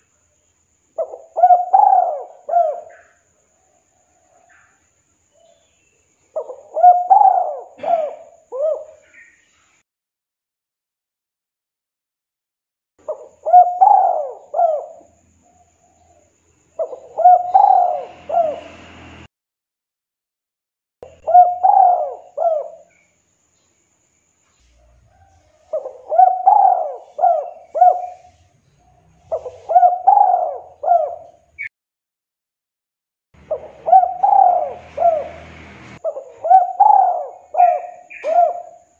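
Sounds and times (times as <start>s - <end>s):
dove cooing: 1.0s - 4.7s, 6.3s - 9.3s, 13.0s - 18.8s, 21.0s - 23.0s, 24.8s - 31.7s, 33.4s - 38.9s.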